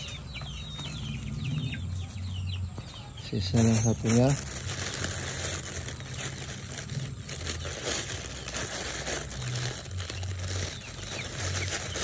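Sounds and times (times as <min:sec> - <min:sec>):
plastic bag crinkling: 0:03.4 - 0:12.0.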